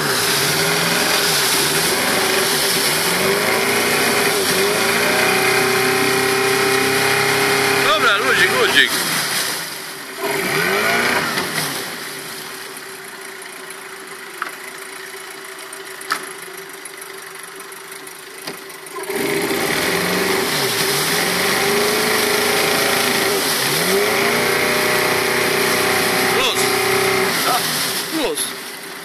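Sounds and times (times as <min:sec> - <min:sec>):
outboard motor running: 0:00.0 - 0:29.0.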